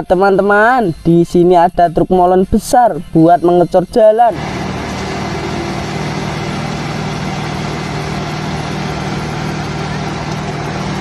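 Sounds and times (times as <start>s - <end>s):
concrete pouring down chute: 4.4s - 11.0s
diesel engine running steadily: 4.4s - 11.0s.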